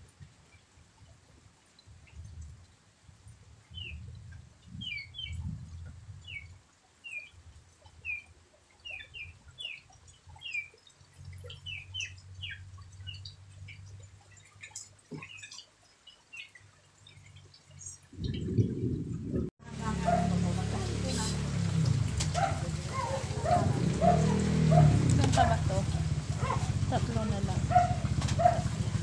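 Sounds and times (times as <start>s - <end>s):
faint low rumble: 18.1s - 29.0s.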